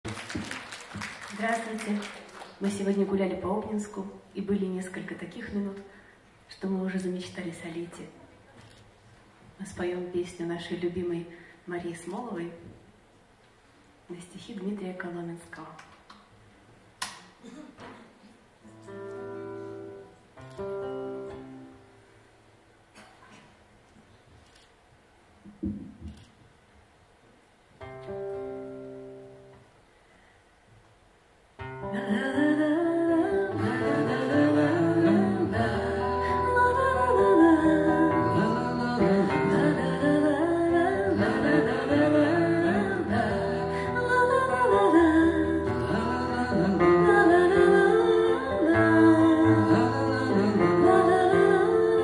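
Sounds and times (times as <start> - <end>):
acoustic guitar: 16.4 - 24.7, 27.7 - 30.4, 31.6 - 52.0
woman singing: 31.8 - 52.0.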